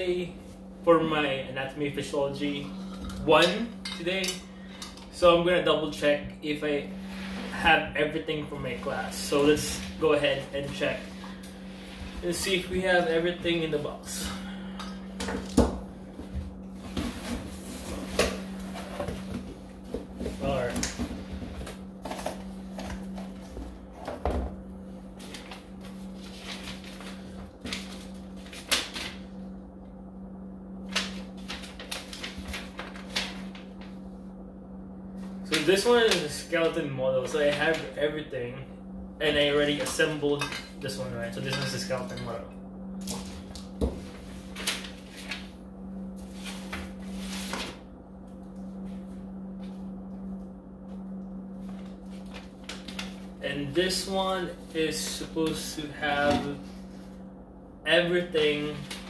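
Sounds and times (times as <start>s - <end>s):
steady low hum: 0.0s - 59.0s
paper and plastic rustling: 25.2s - 29.2s, 30.9s - 33.8s.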